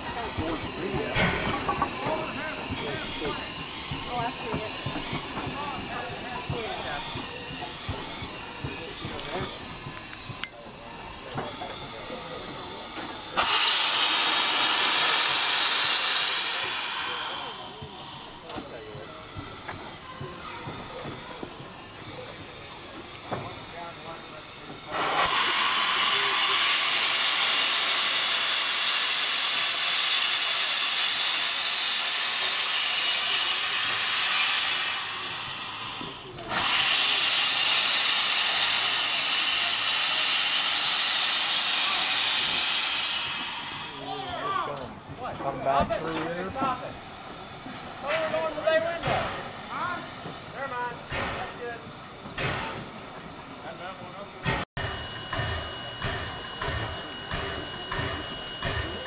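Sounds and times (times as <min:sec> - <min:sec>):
steam hissing out: 0:00.0 - 0:59.0.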